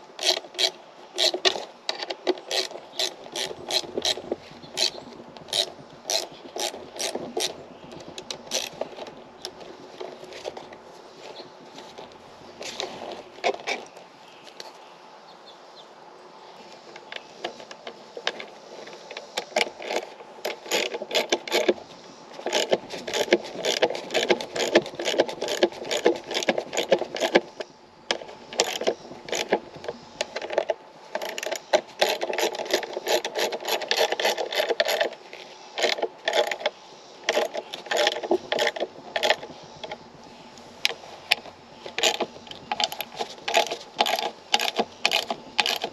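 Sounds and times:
hand ratchet clicking: 0.2 - 9.6, 17.6 - 21.8, 22.4 - 35.2, 35.8 - 40.0, 40.8 - 45.9.

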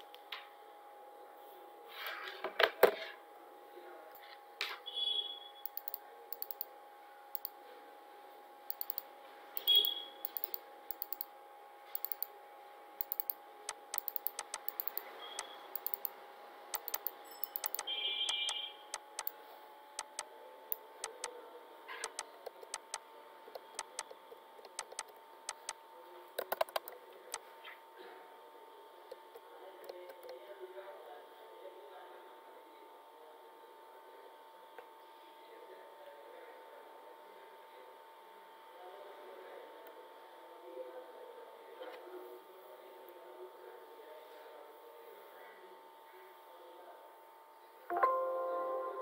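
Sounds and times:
steady low hum: 5.5 - 30.8
computer keyboard typing: 5.7 - 6.7, 8.7 - 9.0, 9.6 - 11.3, 12.0 - 12.3, 13.0 - 19.4, 20.0 - 20.3, 21.0 - 21.3, 22.0 - 23.0, 23.6 - 25.8, 26.4 - 27.0.

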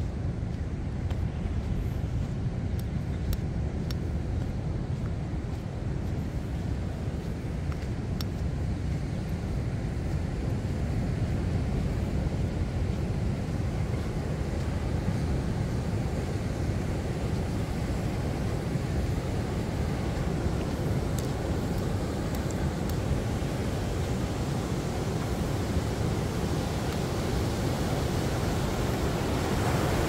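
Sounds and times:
ocean surf breaking on beach: 4.2 - 30.0.

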